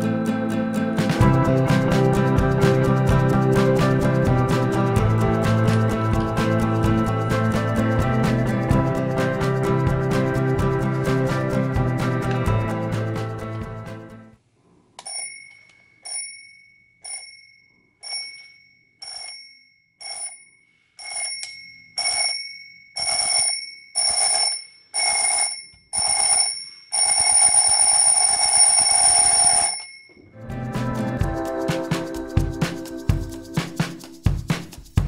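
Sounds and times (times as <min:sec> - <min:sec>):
alarm clock bell ringing: 0:15.1 - 0:30.2.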